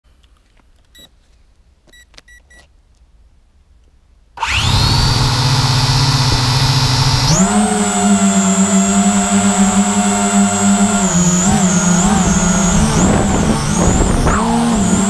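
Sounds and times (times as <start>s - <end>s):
drone propeller buzz: 4.4s - 15.0s.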